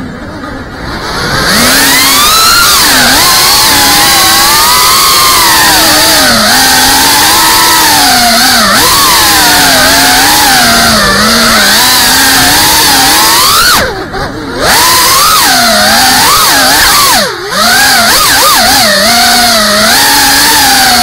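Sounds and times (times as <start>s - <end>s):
drone motors whining: 0.0s - 21.0s.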